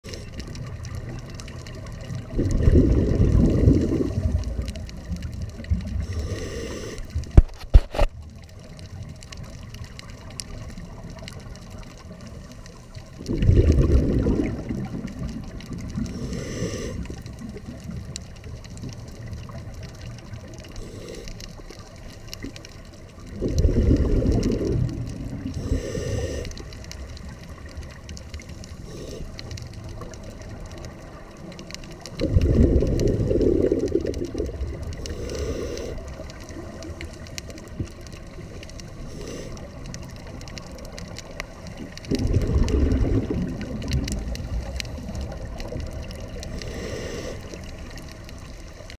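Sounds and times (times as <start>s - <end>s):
bubbling exhaled air: 0.0s - 8.1s, 11.2s - 48.9s
low water rumble: 0.0s - 48.9s
inhalation hiss: 6.0s - 8.1s, 16.0s - 17.2s, 20.7s - 21.6s, 25.4s - 26.9s, 28.5s - 29.6s, 35.0s - 36.3s, 38.7s - 40.0s, 46.4s - 47.8s.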